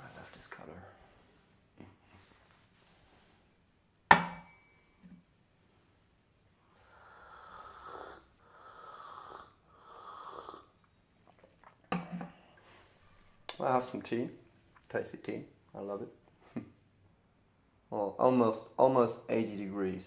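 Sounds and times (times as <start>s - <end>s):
tableware clinking: 4.1s - 5.1s
slurping hot tea: 7.2s - 11.8s.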